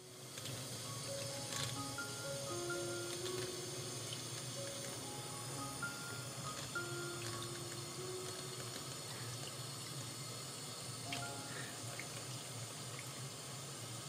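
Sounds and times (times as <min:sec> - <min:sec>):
shower sprayer water splashing: 0:02.9 - 0:14.0.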